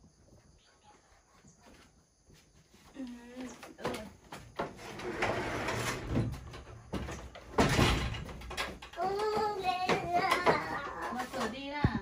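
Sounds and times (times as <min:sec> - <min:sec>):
scraping and rattling: 0:03.5 - 0:12.0.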